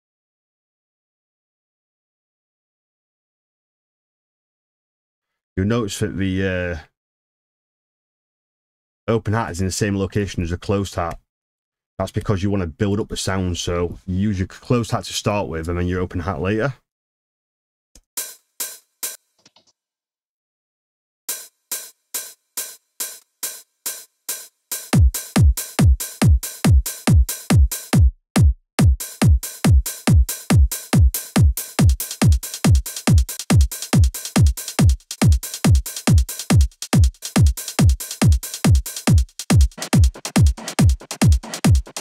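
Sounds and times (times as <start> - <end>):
hi-hats and percussion hits: 18.2 - 19.3, 21.3 - 28.1, 28.8 - 42.0
kick drum thuds: 25.0 - 41.9.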